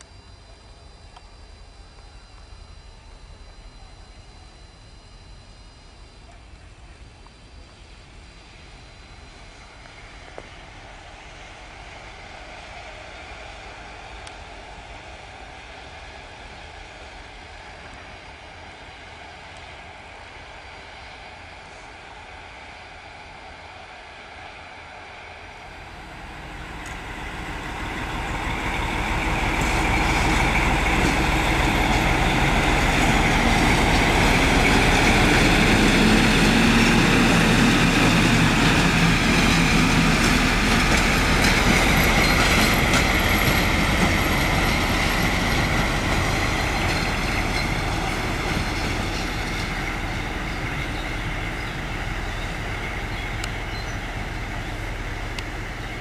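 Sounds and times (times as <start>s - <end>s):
railway locomotives passing: 0.0s - 56.0s.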